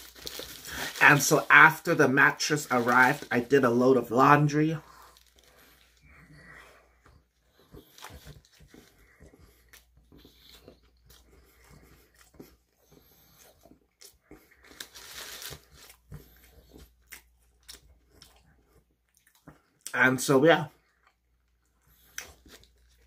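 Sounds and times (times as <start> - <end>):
person chewing food: 4.8 - 20.0, 20.7 - 23.0.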